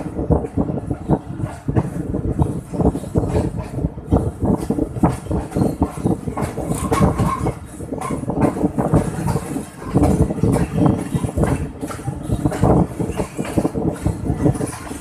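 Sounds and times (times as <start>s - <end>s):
train wheels clattering on track: 0.0s - 15.0s.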